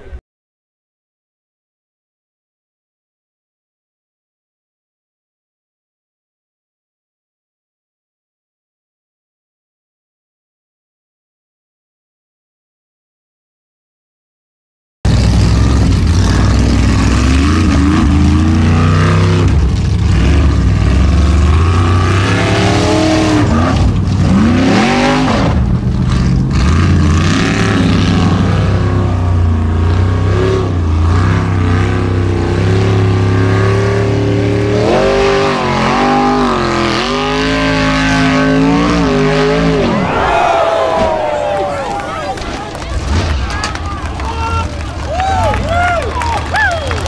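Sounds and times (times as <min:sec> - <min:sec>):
buggy engine revving: 0:15.1 - 0:47.0.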